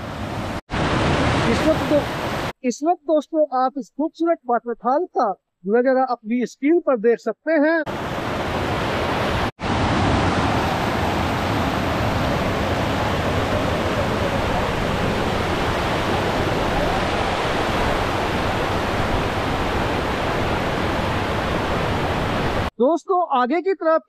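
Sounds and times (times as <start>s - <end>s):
waterfall rushing over rocks: 0.0s - 2.5s, 7.9s - 22.7s.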